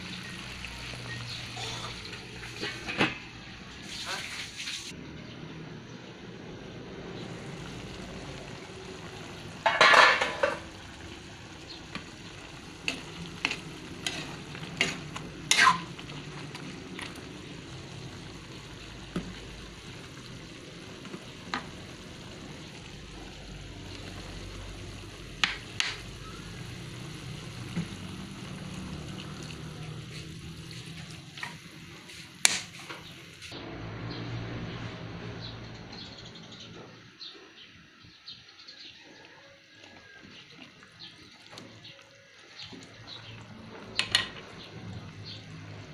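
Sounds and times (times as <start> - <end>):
chicken frying in a pan: 0.0 - 5.0, 7.0 - 33.6, 38.9 - 45.9
metal pan lid clatter: 9.6 - 10.6
utensil scraping a pan: 12.9 - 16.0.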